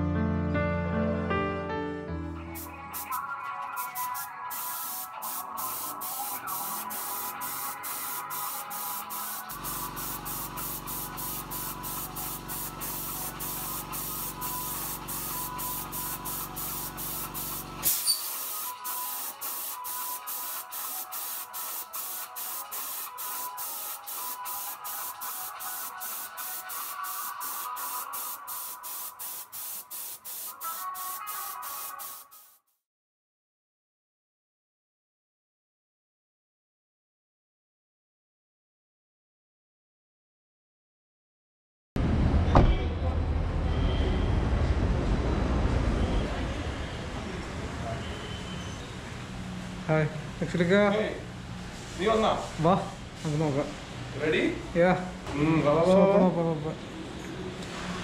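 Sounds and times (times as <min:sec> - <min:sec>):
spray gun hissing: 0:02.6 - 0:32.6.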